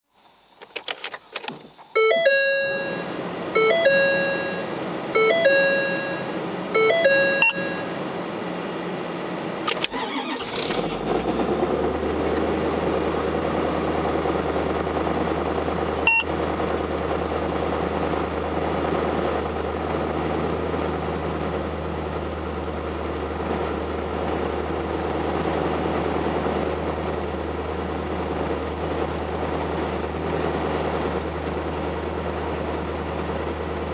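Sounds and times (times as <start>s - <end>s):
diesel engine starting and idling: 0.4s - 33.9s
dashboard chime: 2.0s - 8.1s.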